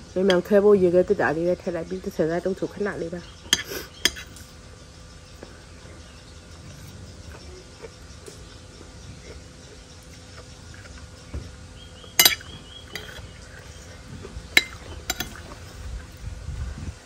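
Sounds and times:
cutlery clinking on plate: 12.2 - 13.2.

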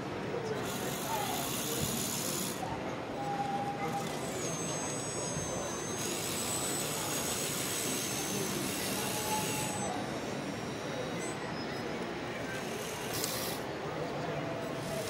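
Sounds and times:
electric motor whine: 3.9 - 11.4.

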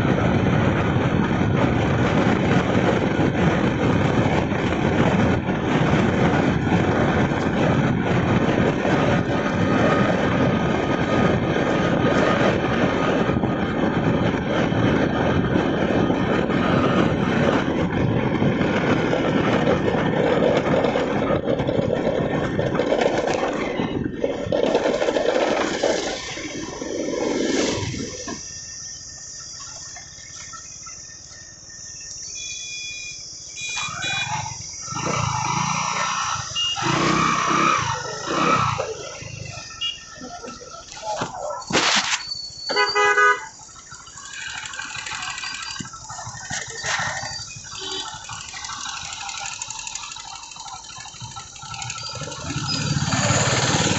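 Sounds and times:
wind rush over microphone: 0.0 - 28.8
motorcycle engine running: 43.0 - 53.9.

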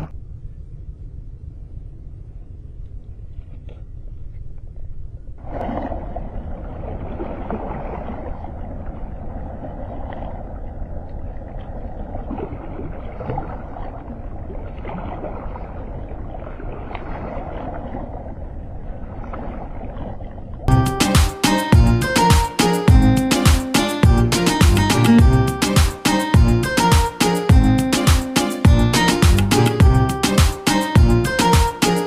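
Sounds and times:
river water splashing against rocks: 5.4 - 10.6, 11.6 - 18.2.

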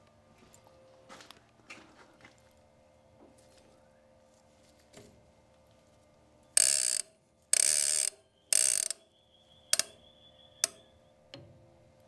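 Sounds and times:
sharp metallic clicks: 6.6 - 9.1, 9.7 - 10.0, 10.6 - 11.5.

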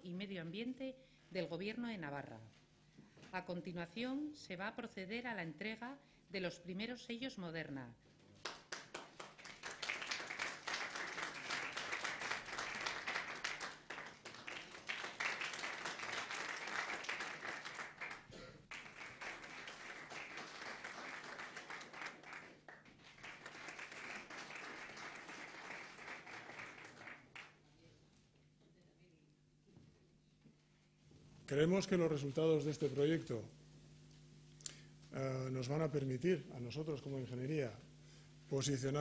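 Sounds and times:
audience applauding: 8.4 - 27.6.

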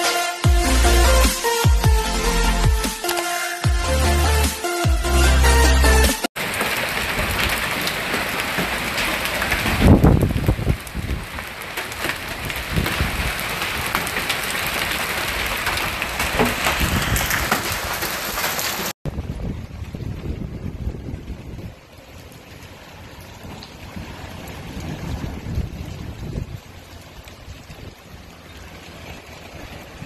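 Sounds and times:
rain hissing: 0.0 - 30.0
hailstones ticking: 6.4 - 18.9.

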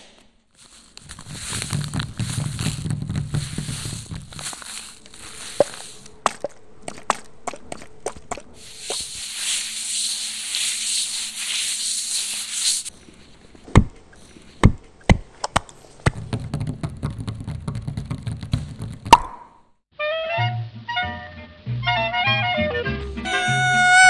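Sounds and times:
crackling rustle: 0.1 - 15.1
crusty bread crunching: 0.5 - 6.2
heavy thumps: 1.0 - 6.5, 13.6 - 19.3.

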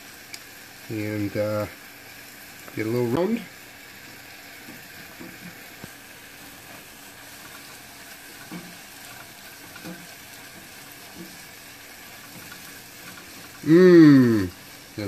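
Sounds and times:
onions sizzling in butter: 0.0 - 15.0
spatula tapping and scraping: 6.7 - 13.6.

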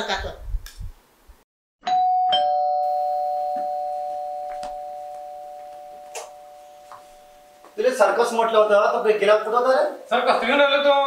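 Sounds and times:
two-tone doorbell chime: 1.8 - 7.8.

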